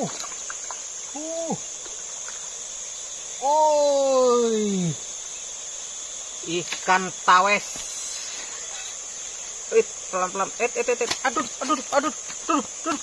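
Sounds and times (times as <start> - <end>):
insects droning: 0.0 - 13.0
man humming: 1.2 - 1.6, 11.3 - 13.0.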